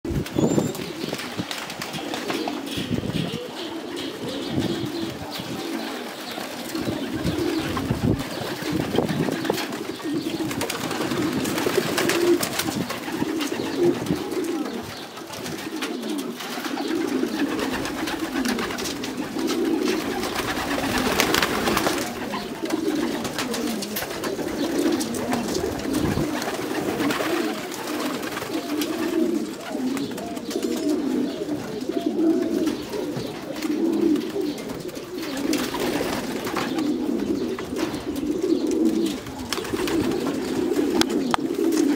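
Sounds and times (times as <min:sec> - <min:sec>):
pigeons cooing: 0:00.0 - 0:41.9
wing flaps: 0:06.4 - 0:14.5, 0:15.4 - 0:30.3.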